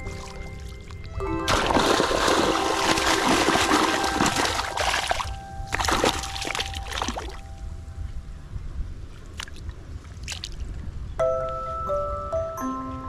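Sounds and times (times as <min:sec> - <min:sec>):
muddy water splashing: 0:00.0 - 0:07.5, 0:09.2 - 0:10.7.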